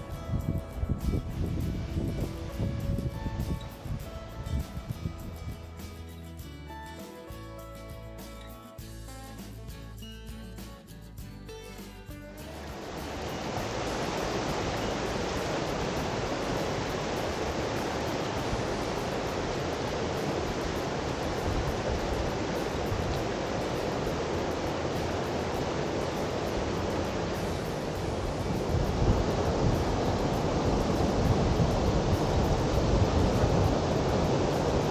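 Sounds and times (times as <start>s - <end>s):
river rushing over rocks: 12.5s - 34.9s.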